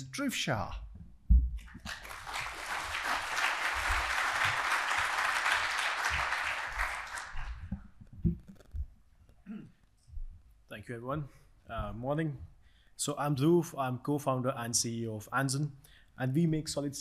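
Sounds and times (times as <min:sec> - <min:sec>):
low thump: 0:01.0 - 0:01.6
audience applauding: 0:01.6 - 0:07.7.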